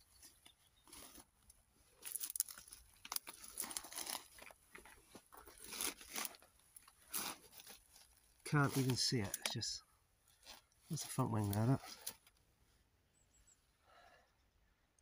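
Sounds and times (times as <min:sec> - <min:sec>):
dry grass crackling and rustling: 0:00.0 - 0:12.5.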